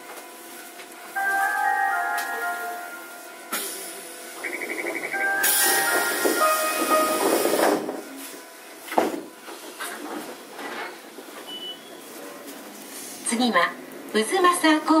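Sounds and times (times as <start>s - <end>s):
tram running noise: 0.0s - 15.0s
electronic chime melody: 1.2s - 3.5s, 4.4s - 7.6s
air hissing: 5.4s - 8.0s.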